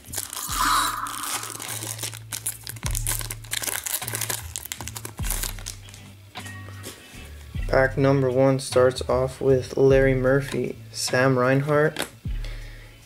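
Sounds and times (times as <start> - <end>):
foil pack crinkling: 0.0 - 0.5, 1.1 - 6.0
background music with deep bass: 0.0 - 11.2.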